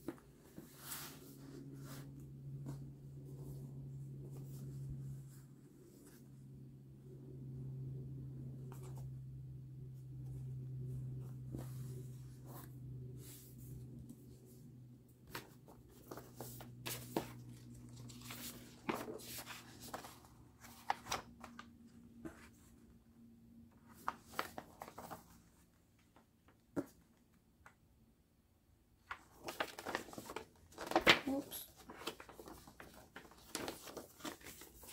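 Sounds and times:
low steady hum: 0.0 - 26.5
paper rustling and crinkling: 15.3 - 22.6, 23.8 - 25.6, 29.0 - 34.9.

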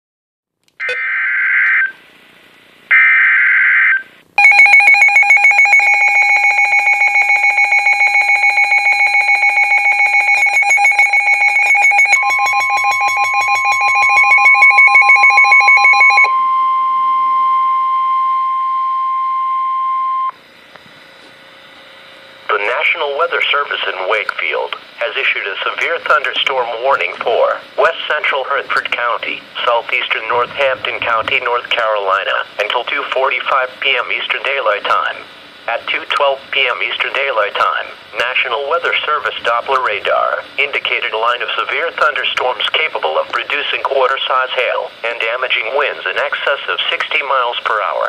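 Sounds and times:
rapidly pulsing alarm beeps: 2.9 - 20.3
steady alarm tone: 2.9 - 20.4
digital header bursts: 8.3 - 16.3.

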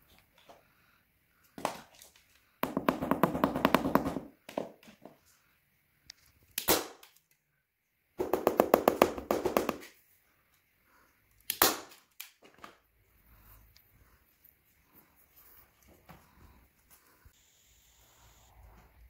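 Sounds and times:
staple gun shots: 6.6 - 7.2, 11.5 - 12.0.

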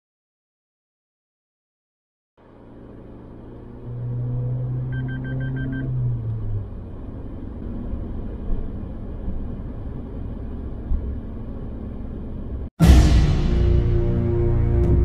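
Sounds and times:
car engine and tyre noise: 2.4 - 12.7
short electronic beeps: 4.8 - 6.0.

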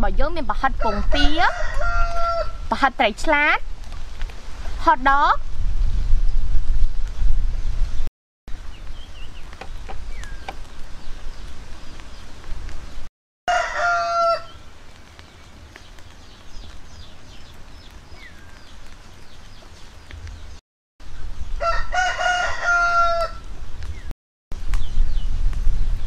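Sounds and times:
rooster crowing: 0.8 - 2.6, 13.5 - 14.6, 21.6 - 23.4.

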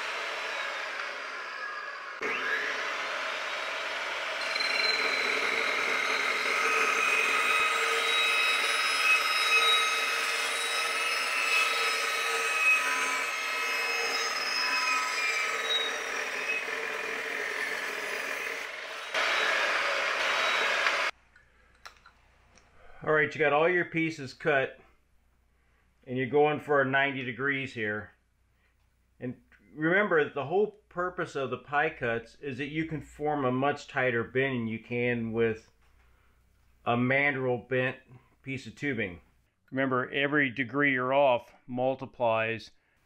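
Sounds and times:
chop saw cutting aluminium tube: 0.0 - 21.1.

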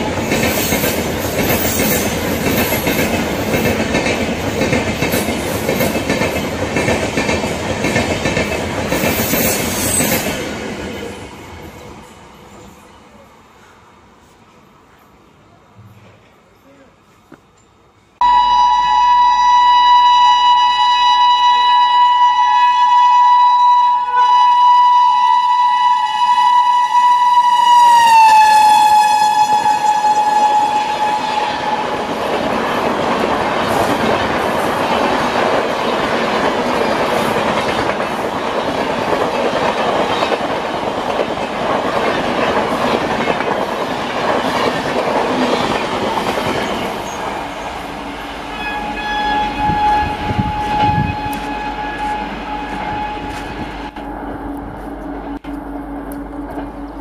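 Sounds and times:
train coaches rumbling and clacking: 0.0 - 18.1, 28.1 - 57.0
locomotive horn: 18.2 - 32.0, 48.5 - 55.2.

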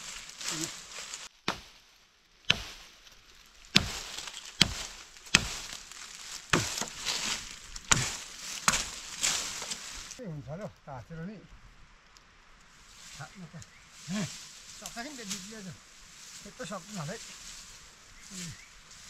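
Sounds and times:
hand tool chopping: 1.4 - 1.8, 2.5 - 2.9, 3.7 - 9.8.

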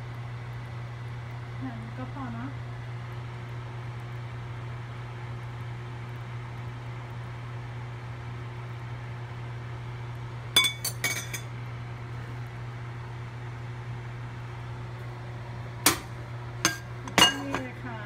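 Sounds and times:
metal spoon clinking cookware: 10.6 - 11.5, 16.7 - 17.7.

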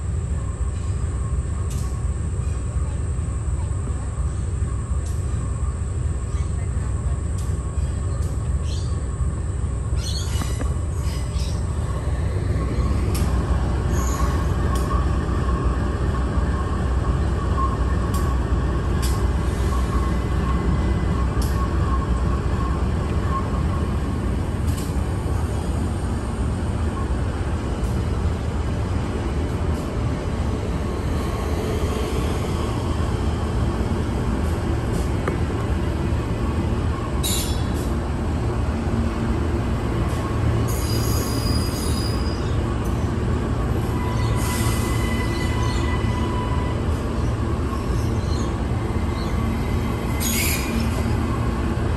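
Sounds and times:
freight train rumbling: 0.0 - 51.9
train clicks: 19.0 - 19.3, 24.6 - 25.0
faint wheel squeal: 40.7 - 42.6, 43.8 - 46.9, 49.1 - 51.3.

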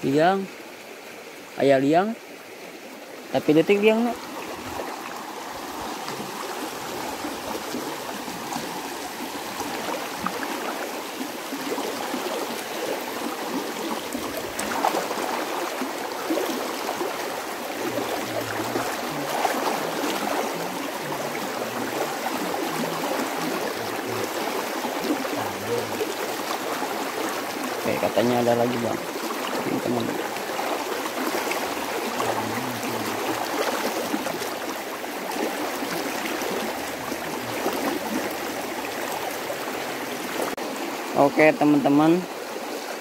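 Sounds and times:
stream rushing over stones: 0.0 - 43.0.

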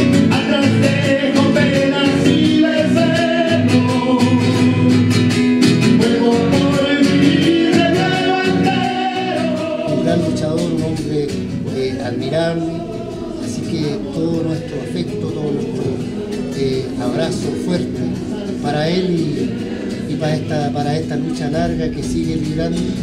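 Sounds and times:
acoustic guitar strumming: 0.0 - 23.0
man singing held notes: 6.0 - 23.0.

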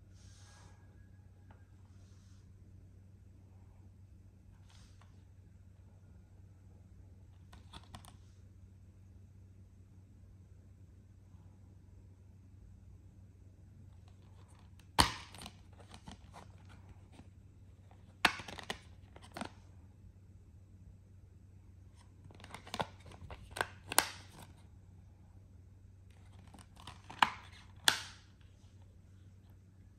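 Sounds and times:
plastic case snapping: 18.2 - 19.5, 26.4 - 28.2.

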